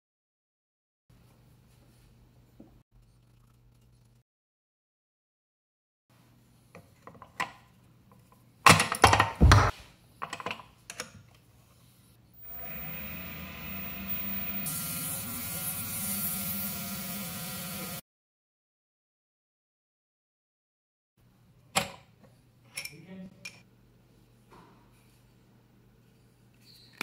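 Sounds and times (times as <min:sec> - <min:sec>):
lathe machine hum: 0:12.4 - 0:18.0.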